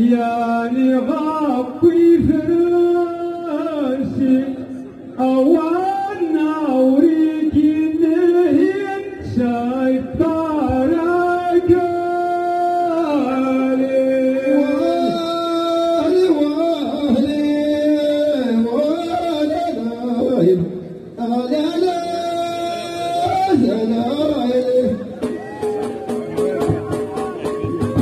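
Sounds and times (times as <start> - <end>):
men singing together: 10.3 - 19.0.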